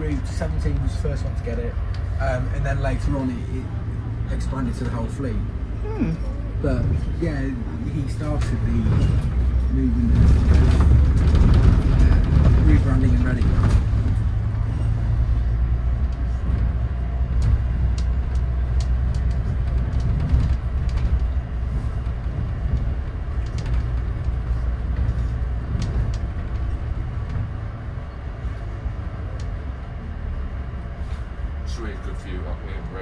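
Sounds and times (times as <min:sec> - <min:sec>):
bus engine drone: 0:00.0 - 0:33.0
road noise: 0:00.0 - 0:33.0
body and fittings rattling: 0:07.9 - 0:27.7.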